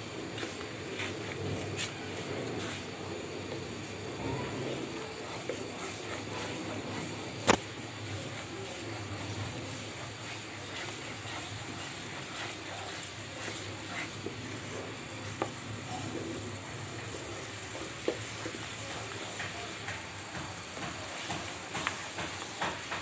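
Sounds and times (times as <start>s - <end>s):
paste sizzling in a frying pan: 0.0s - 23.0s
wooden spatula scraping: 0.1s - 23.0s
spatula knocking against pan: 19.3s - 23.0s.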